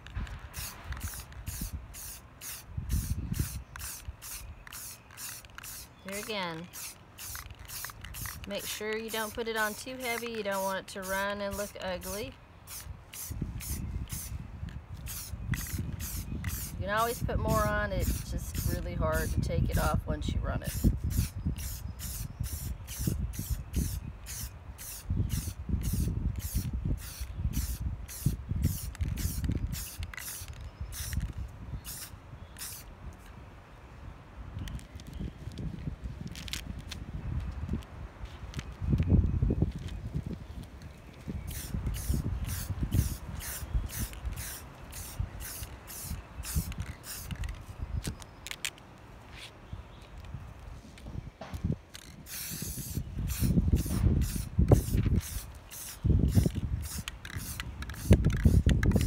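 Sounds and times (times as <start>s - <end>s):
spray paint can hissing bursts: 0.0s - 14.4s, 15.0s - 32.9s, 41.5s - 48.8s, 51.9s - 59.0s.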